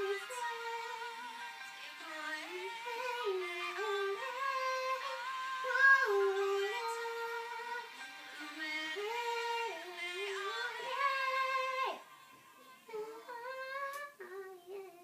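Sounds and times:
girl singing: 0:00.0 - 0:15.0.

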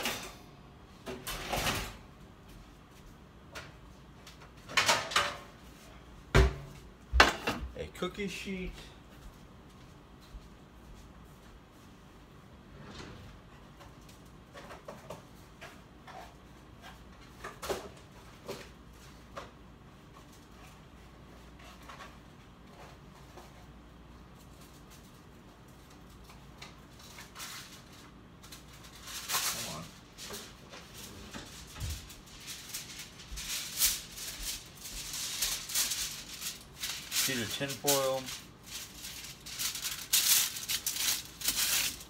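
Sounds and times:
aluminium foil crinkling: 0:24.3 - 0:42.0.

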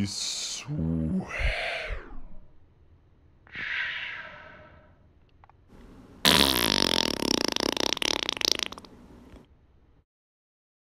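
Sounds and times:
long fluttering fart: 0:06.2 - 0:08.9.

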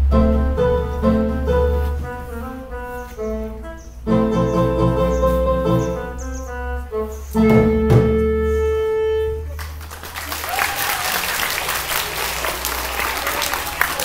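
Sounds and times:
voices calling out: 0:08.4 - 0:14.0
children applauding: 0:09.4 - 0:14.0.

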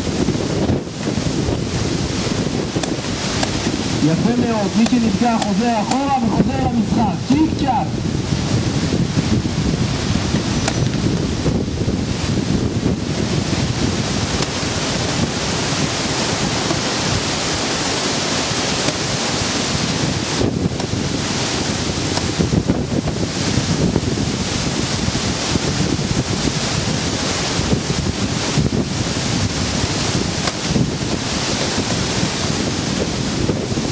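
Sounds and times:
wind buffeting microphone: 0:00.0 - 0:33.9.

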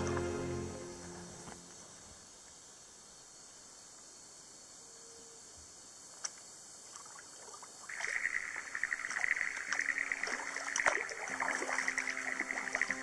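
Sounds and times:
water dripping off paddle: 0:06.2 - 0:13.0
paddle strokes splashing in water: 0:06.8 - 0:13.0.

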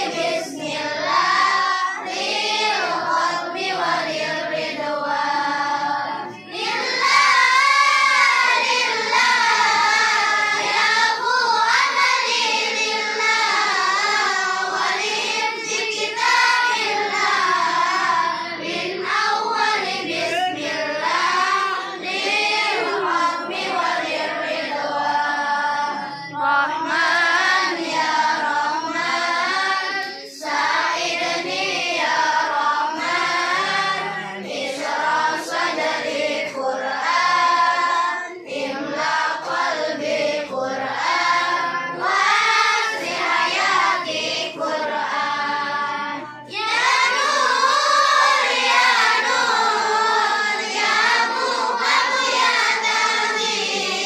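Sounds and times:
boys singing: 0:00.0 - 0:54.0
children singing in unison: 0:00.0 - 0:54.0.

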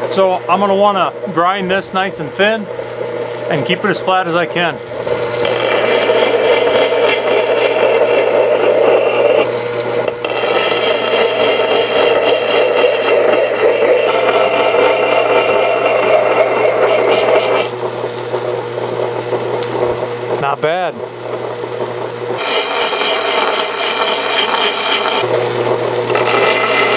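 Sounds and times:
grinder motor humming: 0:00.0 - 0:26.9
axe grinding on wheel: 0:05.1 - 0:17.8, 0:22.4 - 0:25.3, 0:26.0 - 0:26.9.

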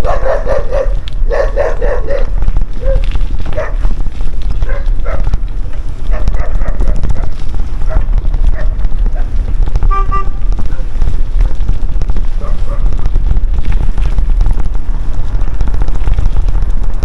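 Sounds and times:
dog barking: 0:00.0 - 0:03.8, 0:04.6 - 0:05.3, 0:06.1 - 0:07.3, 0:07.9 - 0:09.3, 0:12.4 - 0:12.9
steady low rumble: 0:00.0 - 0:17.0.

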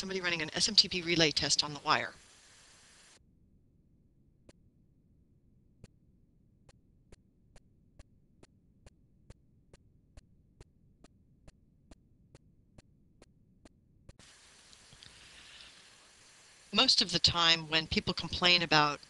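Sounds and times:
room noise hiss: 0:00.0 - 0:03.2, 0:14.2 - 0:19.0
faint evenly spaced ticks: 0:05.8 - 0:17.8.

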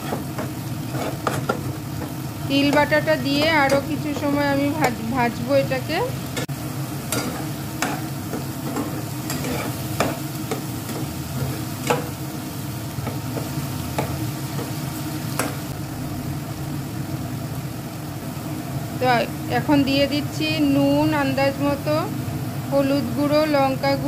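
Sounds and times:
spatula scraping pan: 0:00.0 - 0:05.1, 0:06.3 - 0:12.2
paste sizzling in oil: 0:00.0 - 0:23.3
steady low hum: 0:00.0 - 0:24.0.

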